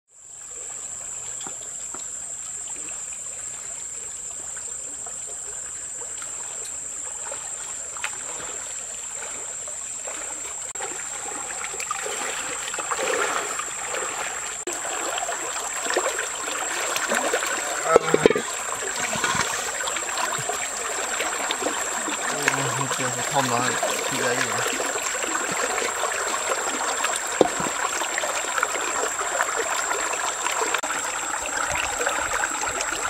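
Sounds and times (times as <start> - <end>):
stream running over its bed: 0.1 - 33.0
footsteps splashing through water: 6.3 - 28.1.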